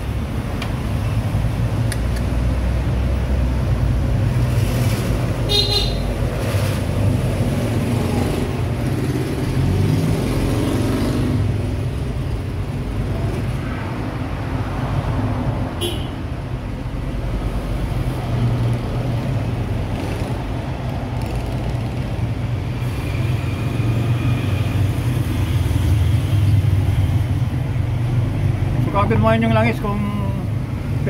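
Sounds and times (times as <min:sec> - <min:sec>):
road traffic rumble: 0:00.0 - 0:31.0
vehicle horn toot: 0:05.5 - 0:06.1, 0:15.8 - 0:16.2.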